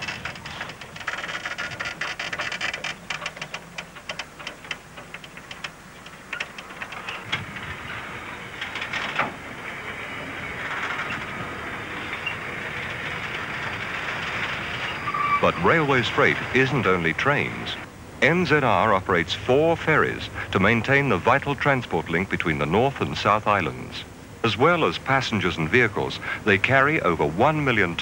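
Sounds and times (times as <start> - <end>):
freight wagons rolling and clanking: 0.0 - 23.8.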